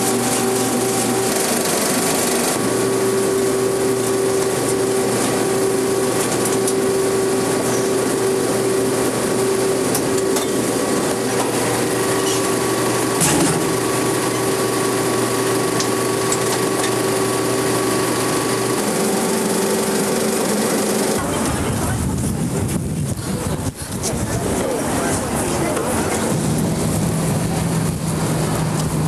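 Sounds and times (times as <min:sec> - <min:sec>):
film projector whirring: 0:00.0 - 0:22.2.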